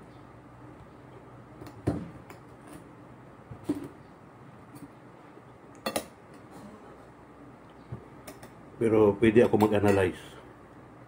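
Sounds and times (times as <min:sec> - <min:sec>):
steady low hum: 0:00.0 - 0:11.0
cutlery clinking on a plate: 0:05.8 - 0:06.2, 0:09.4 - 0:10.2.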